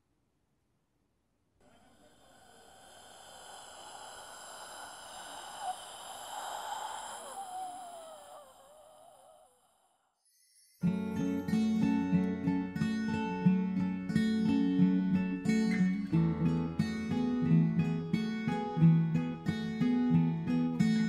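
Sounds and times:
hiss with high ringing: 0:01.7 - 0:11.3.

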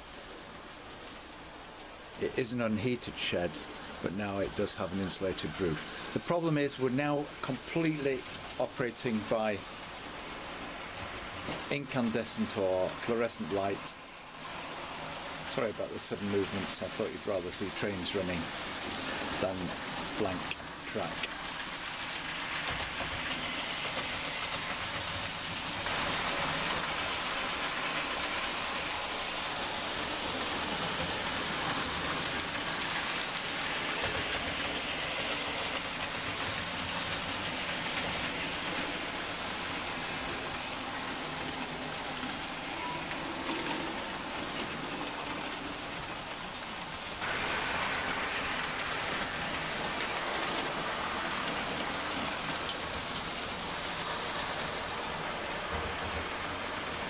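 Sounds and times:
model trains whirring on track: 0:00.0 - 0:57.0.

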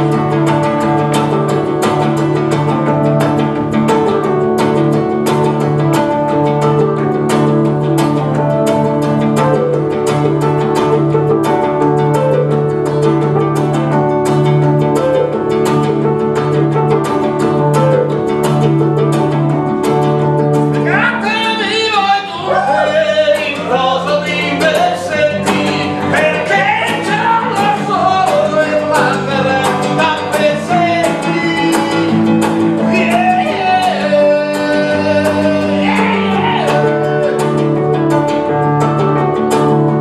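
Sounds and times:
acoustic guitar strumming chords: 0:00.0 - 0:40.0
man singing: 0:20.8 - 0:37.7.

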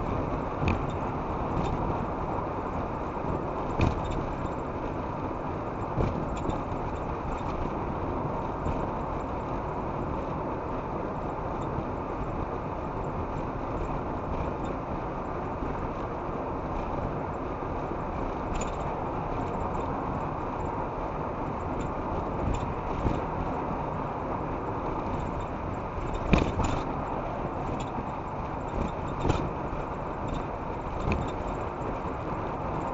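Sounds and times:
car road and engine noise: 0:00.0 - 0:32.9
short knocks or rattles: 0:03.7 - 0:04.6, 0:25.0 - 0:27.0.

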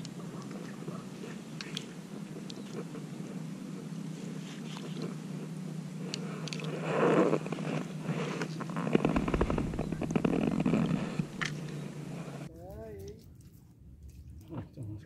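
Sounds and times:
low steady hum: 0:00.0 - 0:12.6
rustling and scraping among branches: 0:06.7 - 0:12.5.

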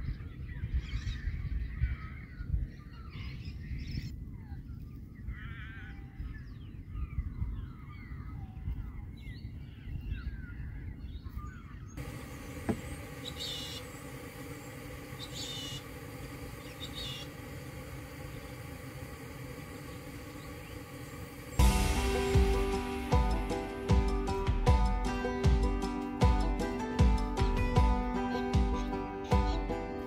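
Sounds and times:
birds chirping: 0:00.0 - 0:30.0
faint hum: 0:11.9 - 0:30.0
steady hiss: 0:12.0 - 0:30.0
low rumble: 0:21.2 - 0:28.9.

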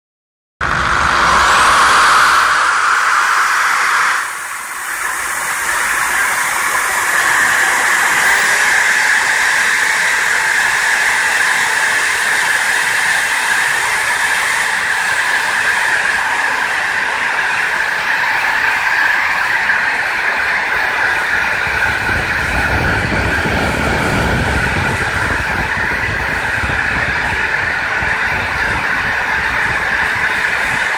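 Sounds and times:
drill disc grinding copper: 0:00.6 - 0:19.5.

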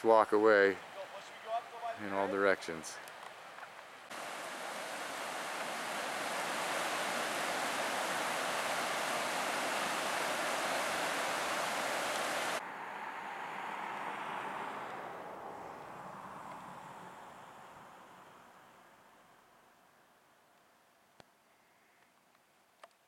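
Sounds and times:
faint outdoor hiss: 0:00.0 - 0:13.7, 0:15.3 - 0:23.0
river rushing over rocks: 0:04.1 - 0:12.6.

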